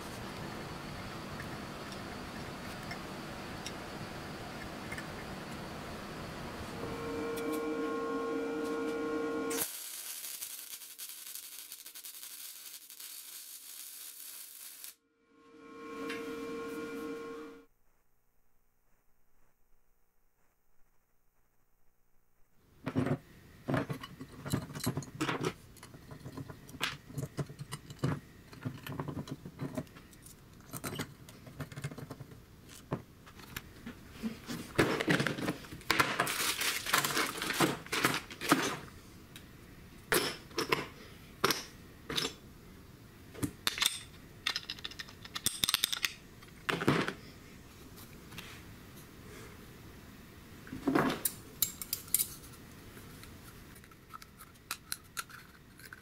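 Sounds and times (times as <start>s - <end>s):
plastic bags crinkling: 36.0s - 38.6s
small metal parts clinking: 43.6s - 46.6s.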